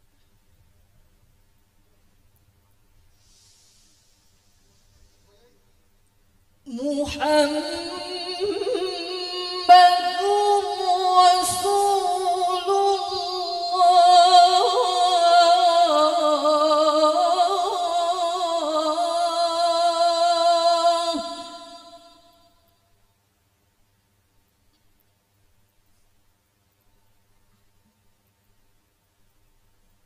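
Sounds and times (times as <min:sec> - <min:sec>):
woman chanting melodiously: 0:06.7 - 0:22.6.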